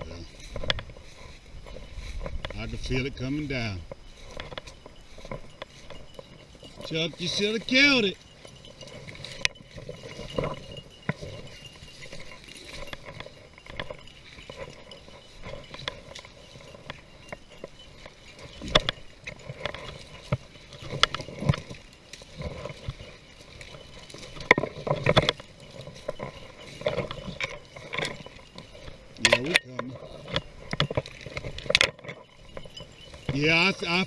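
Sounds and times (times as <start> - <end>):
rustling through dry brush: 0.0 - 34.0.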